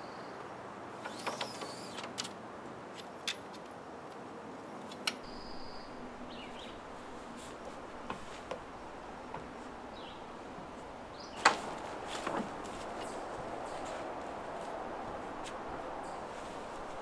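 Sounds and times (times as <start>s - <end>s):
outdoor background hiss: 0.0s - 17.0s
tent poles clicking: 1.0s - 3.7s, 4.8s - 5.3s, 6.1s - 17.0s
bird whistles and chirps: 5.2s - 6.7s.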